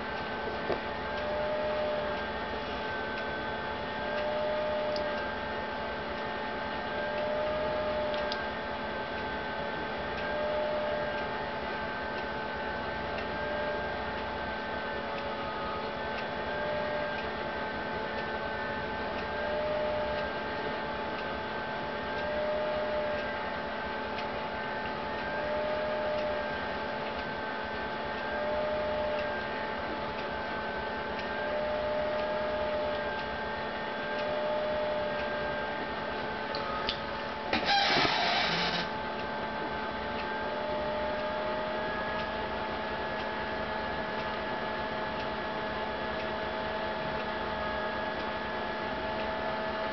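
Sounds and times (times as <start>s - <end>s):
wavering tonal hum: 0.0s - 49.9s.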